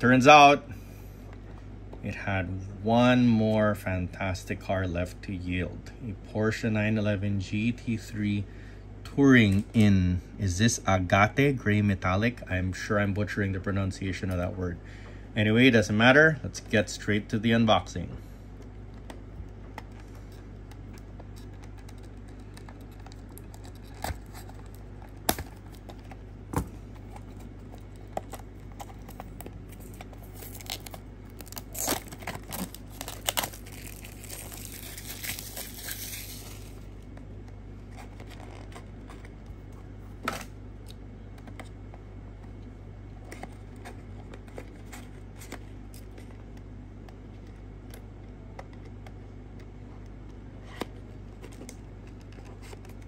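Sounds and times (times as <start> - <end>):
steady low hum: 0.0 - 53.0
plastic crinkling and tearing: 20.2 - 37.1.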